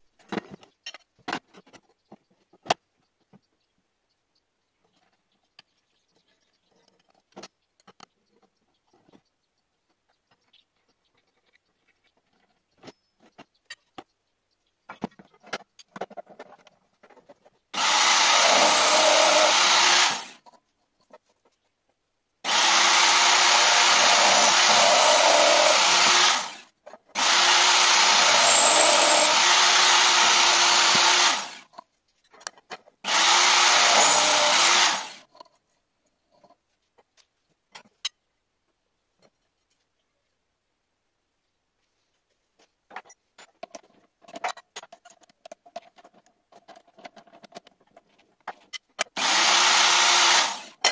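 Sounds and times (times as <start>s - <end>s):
drill press drilling metal: 17.8s - 20.3s, 22.5s - 26.6s, 27.2s - 31.6s, 33.1s - 35.2s, 49.2s - 50.7s.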